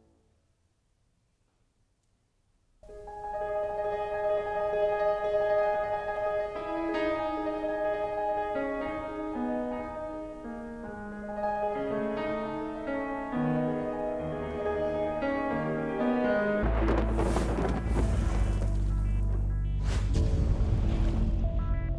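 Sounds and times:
slow piano music: 2.8 - 19.7
rushing noise with low rumble: 16.6 - 21.6.

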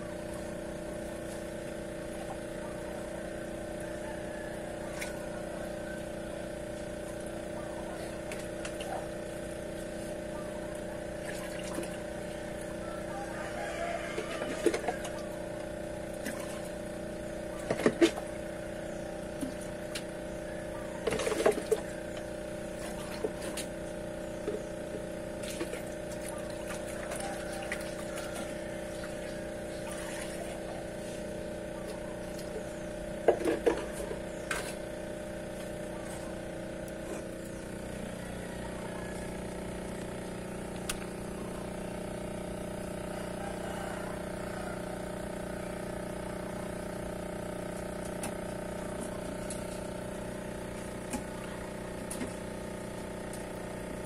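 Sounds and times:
aquarium pumps humming: 0.0 - 54.0
water splashing into tank: 11.2 - 12.1.

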